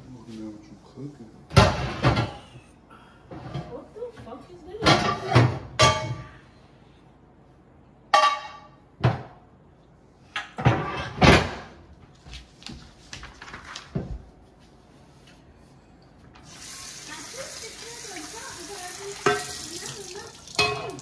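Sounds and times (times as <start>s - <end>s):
pots and pans clanking: 4.8s - 6.4s, 8.2s - 9.2s, 19.2s - 21.0s.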